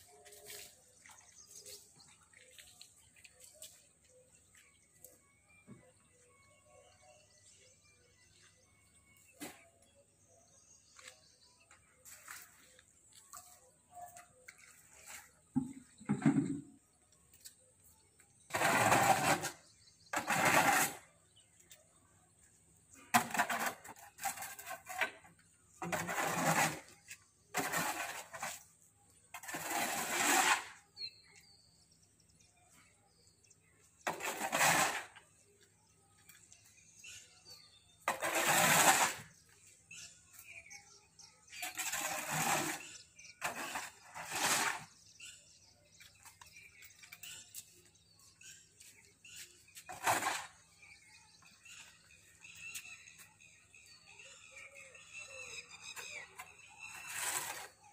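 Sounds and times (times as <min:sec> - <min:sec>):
scraper scraping concrete floor: 0:18.4 - 0:21.8, 0:22.9 - 0:32.5, 0:33.1 - 0:54.8, 0:55.8 - 0:57.9.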